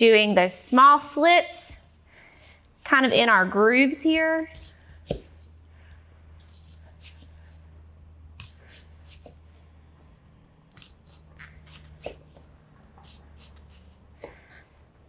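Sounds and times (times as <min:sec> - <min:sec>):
knife cutting onion: 0:06.4 - 0:07.6, 0:08.3 - 0:09.4, 0:10.7 - 0:14.5.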